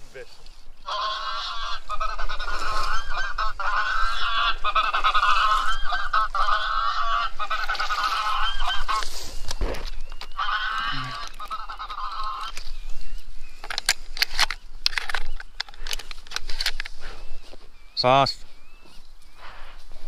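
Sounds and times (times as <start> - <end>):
geese honking from caller: 0.8 - 9.2, 10.2 - 12.6.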